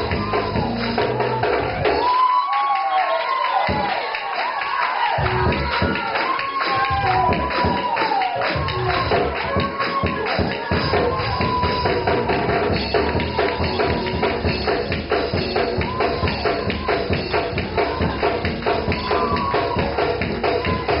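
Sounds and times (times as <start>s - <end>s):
gospel church music: 0.0s - 21.0s
tambourine beat: 5.2s - 21.0s.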